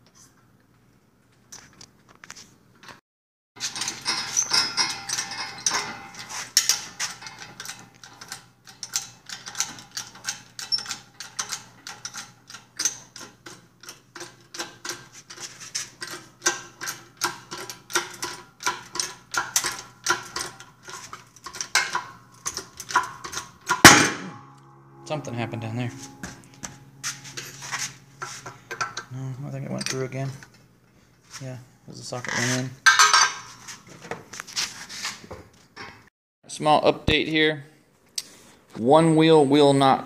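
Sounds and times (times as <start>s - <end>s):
loud bang: 23.7s - 29.2s.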